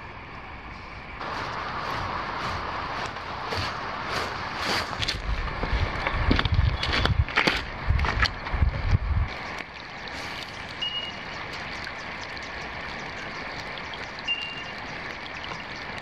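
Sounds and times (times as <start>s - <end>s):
steady hiss: 0.0s - 6.0s, 9.3s - 16.0s
footsteps on river stones: 1.2s - 8.4s.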